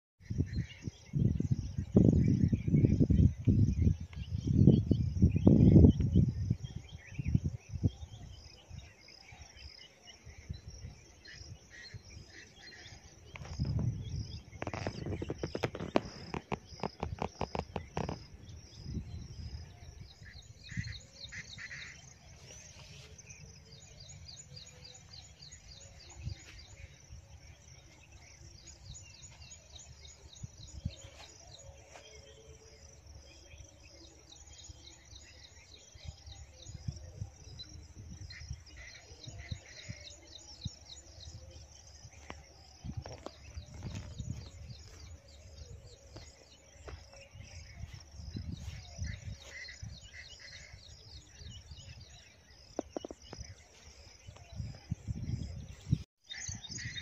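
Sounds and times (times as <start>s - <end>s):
bird chirps: 2.0s - 57.0s
insects trilling: 10.8s - 37.0s.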